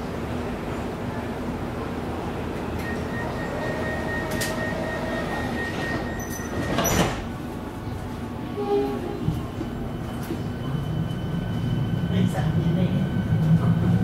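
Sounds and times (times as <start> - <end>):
train humming: 0.0 - 14.0
train doors shutting: 2.5 - 14.0
high warning tone: 2.8 - 6.7.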